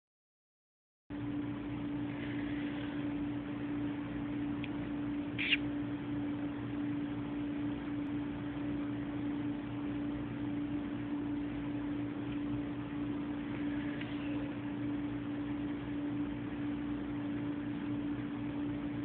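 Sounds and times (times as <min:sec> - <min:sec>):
low electrical hum and hiss: 0:01.1 - 0:19.0
person making kissing squeak: 0:05.4 - 0:05.6.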